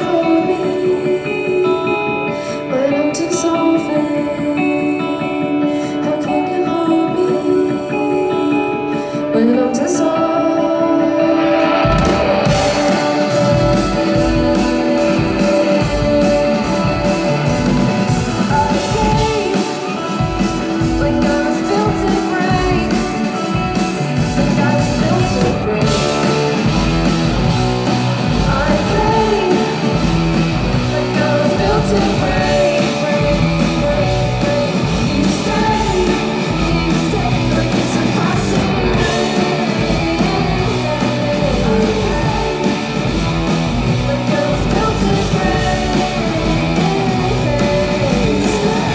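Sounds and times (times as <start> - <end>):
electric guitars: 0.0 - 48.9
person singing: 0.0 - 48.9
rock band playing: 0.0 - 48.9.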